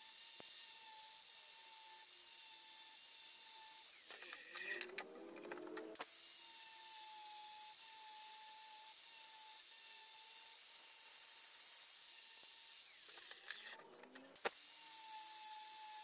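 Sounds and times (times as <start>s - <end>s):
angle grinder whining: 0.0s - 16.0s.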